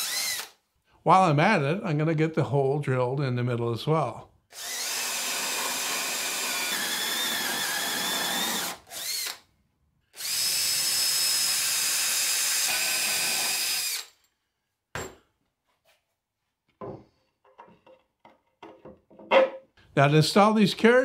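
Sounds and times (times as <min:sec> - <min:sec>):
cordless drill boring into plywood: 0:00.0 - 0:00.6, 0:04.5 - 0:09.4, 0:10.2 - 0:14.1.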